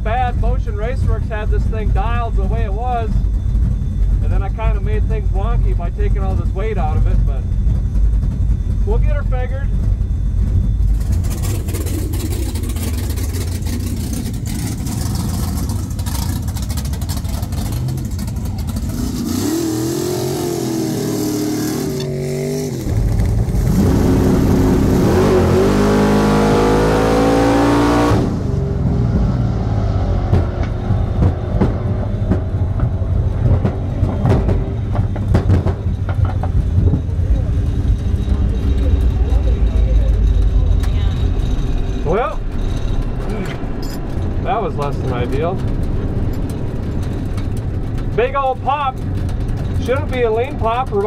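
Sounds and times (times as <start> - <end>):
engine full-throttle run: 0.0 - 51.0
truck engine idling and revving: 0.0 - 51.0.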